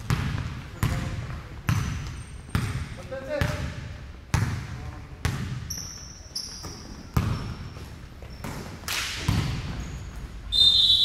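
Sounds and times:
basketball bouncing on wooden floor: 0:00.0 - 0:06.0, 0:06.6 - 0:10.2
sneaker squeaks: 0:00.8 - 0:03.0, 0:05.3 - 0:11.0.

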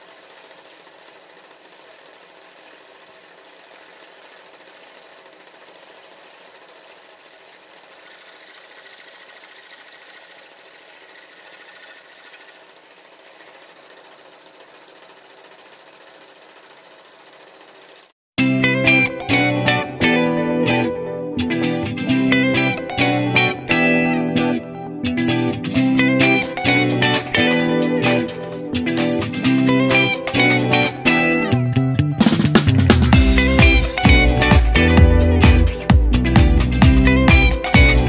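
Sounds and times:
scroll saw cutting wood: 0:00.0 - 0:18.2.

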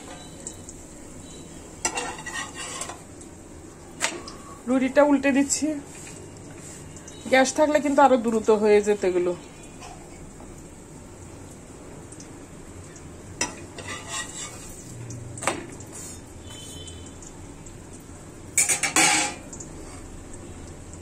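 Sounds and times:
metal utensils clinking on pan: 0:01.8 - 0:03.1, 0:13.4 - 0:14.9, 0:18.6 - 0:20.0.

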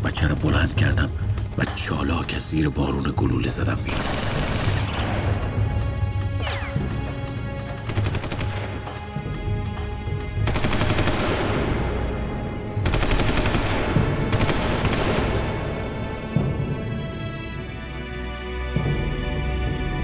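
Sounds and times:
dramatic music score: 0:00.0 - 0:20.0
rapid machine-gun fire: 0:03.9 - 0:05.1, 0:07.8 - 0:08.8, 0:10.4 - 0:11.9, 0:12.8 - 0:15.6.

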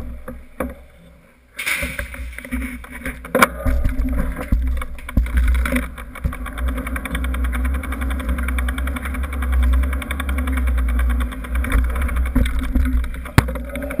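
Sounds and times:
low rumble through bike frame: 0:00.0 - 0:14.0
bicycle freehub ticking: 0:02.8 - 0:14.0.

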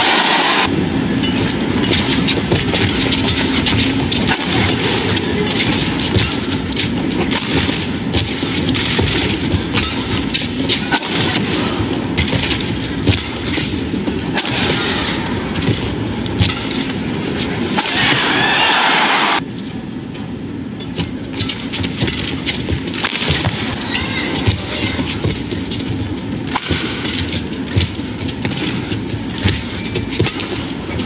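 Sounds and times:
crowd din: 0:00.0 - 0:00.7, 0:17.4 - 0:19.4
racket hitting shuttlecock: 0:01.3 - 0:18.6, 0:21.4 - 0:25.8, 0:26.5 - 0:31.0.

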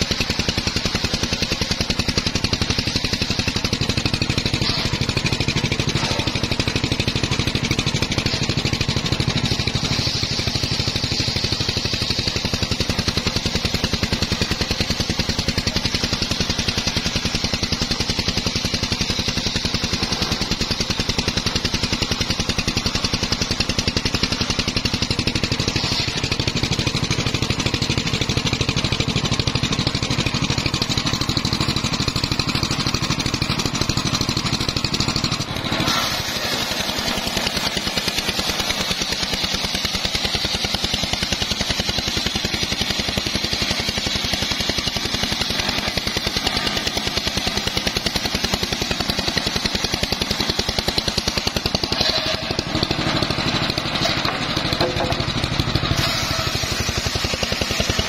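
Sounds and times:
saw blade cutting log: 0:00.0 - 0:58.0
sawmill motor chugging: 0:00.0 - 0:58.0.

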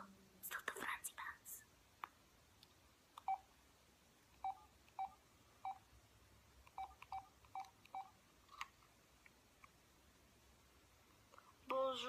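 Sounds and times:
touchscreen keypad beeps: 0:03.2 - 0:03.4, 0:04.4 - 0:05.8, 0:06.7 - 0:08.1.

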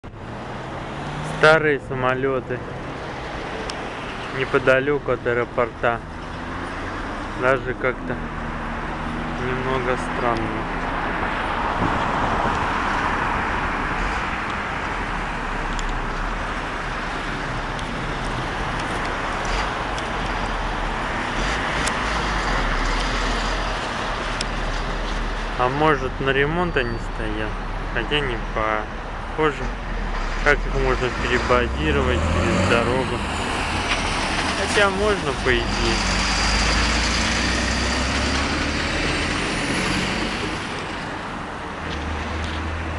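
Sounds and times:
cars passing: 0:00.0 - 0:42.9
dump truck driving past: 0:29.6 - 0:41.1.

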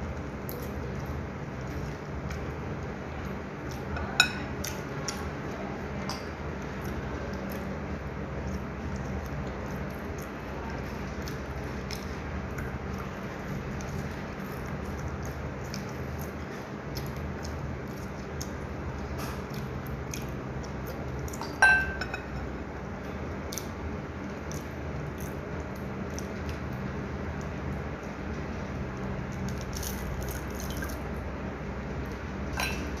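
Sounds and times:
person chewing: 0:08.3 - 0:21.4
dish clinking: 0:21.4 - 0:22.4, 0:32.6 - 0:33.0.

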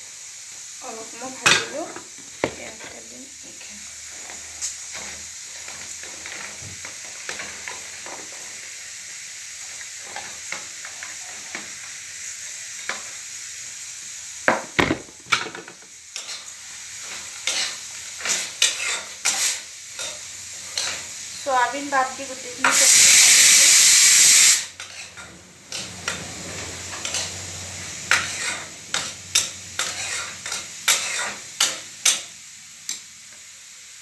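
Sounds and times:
food sizzling in oil: 0:00.0 - 0:34.0
spatula scraping a pan: 0:01.5 - 0:08.7, 0:15.2 - 0:21.2, 0:24.8 - 0:32.2.

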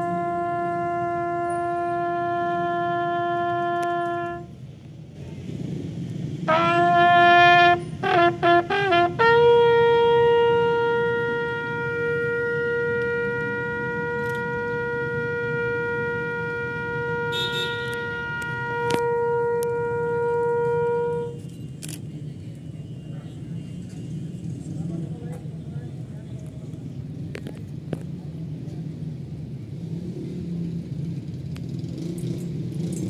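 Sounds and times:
bugle call: 0:00.0 - 0:04.6, 0:06.5 - 0:22.0.

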